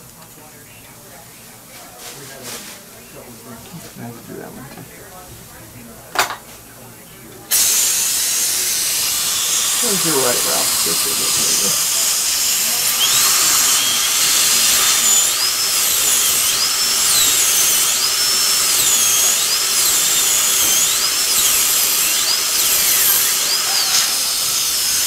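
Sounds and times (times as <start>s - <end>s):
dental drill whining: 7.5s - 25.0s
steady hiss: 7.6s - 12.6s.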